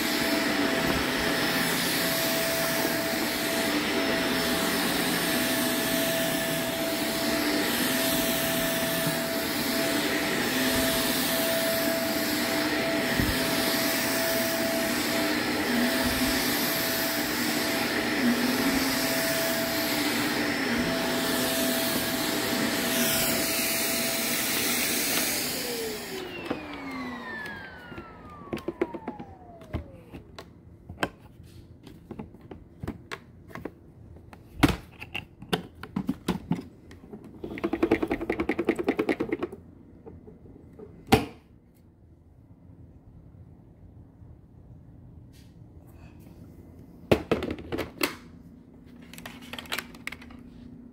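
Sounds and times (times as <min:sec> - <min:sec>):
vacuum motor spinning down: 0:00.0 - 0:30.4
vacuum cleaner running: 0:00.0 - 0:33.7, 0:36.0 - 0:41.4.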